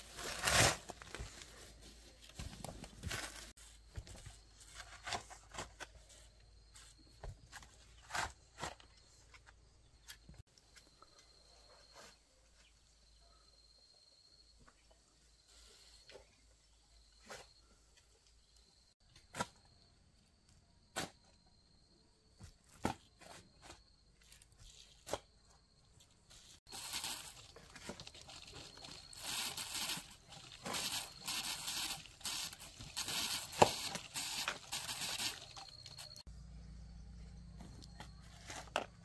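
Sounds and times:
garden tool scraping dirt: 0.0s - 2.1s, 26.3s - 36.3s
garden tool striking soil: 26.7s - 36.2s.

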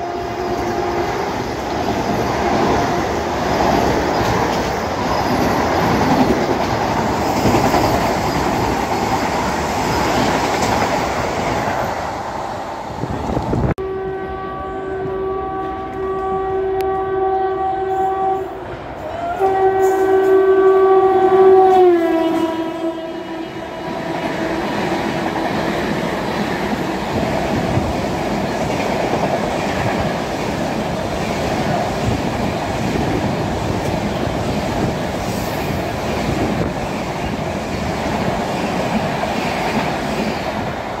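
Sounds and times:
train horn blasts: 0.0s - 1.4s, 13.8s - 24.9s
train wheels clacking on rails: 0.0s - 12.0s.

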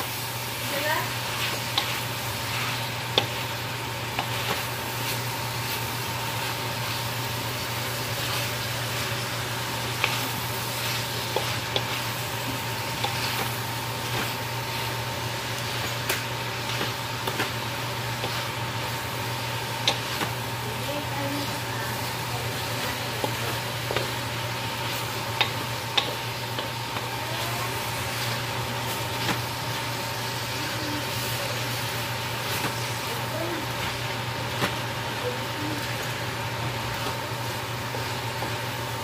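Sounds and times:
food sizzling in a wok: 0.0s - 39.0s
spatula scraping and tapping pan: 9.9s - 14.4s, 19.8s - 20.4s, 25.0s - 27.2s.

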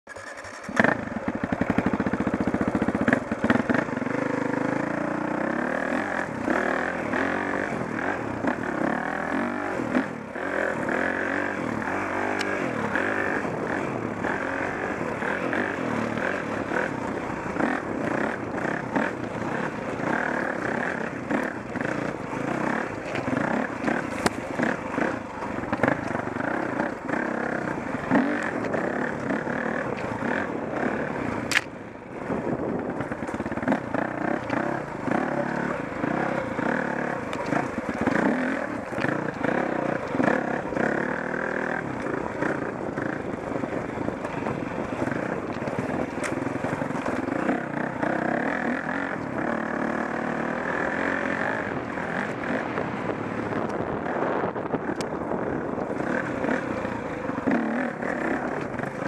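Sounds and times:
dirt bike engine revving: 0.1s - 59.0s.

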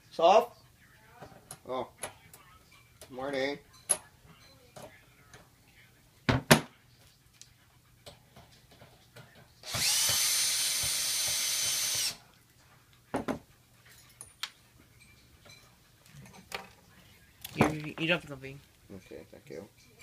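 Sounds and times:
cordless drill motor whine: 9.7s - 12.2s.

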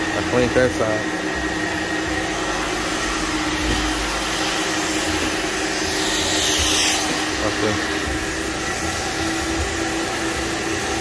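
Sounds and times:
vacuum motor running: 0.0s - 11.0s
hissing rush: 2.2s - 11.0s.

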